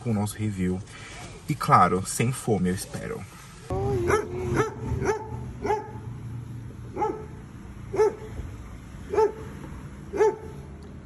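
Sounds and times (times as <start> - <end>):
dog barking: 4.1 - 6.1, 6.9 - 8.3, 9.1 - 9.5, 10.1 - 10.6.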